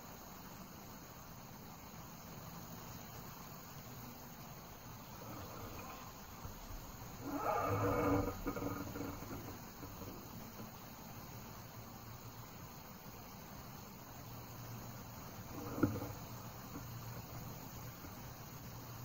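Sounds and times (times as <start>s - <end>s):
crickets and insects chirping: 0.0s - 19.0s
low drawn-out call: 5.2s - 10.6s.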